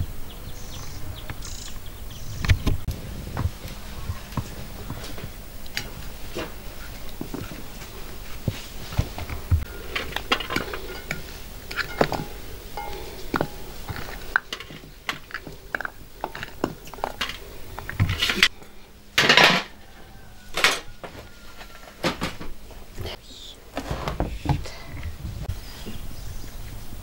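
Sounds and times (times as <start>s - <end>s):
pot scraping on metal hook: 9.6s - 18.5s
food tapping against metal pot: 10.2s - 17.2s.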